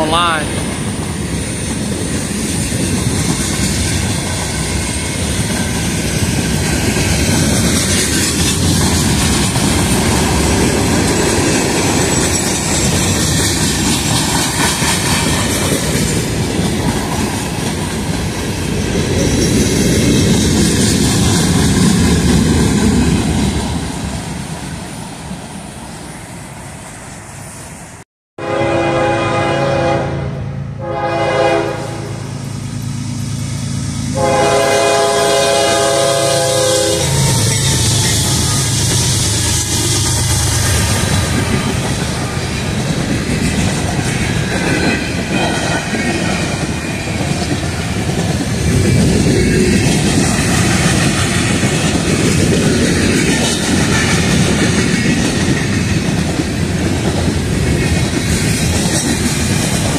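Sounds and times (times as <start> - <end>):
train wheels clattering on rails: 0.0 - 24.9, 32.4 - 59.9
locomotive horn: 28.4 - 32.3, 34.2 - 37.6.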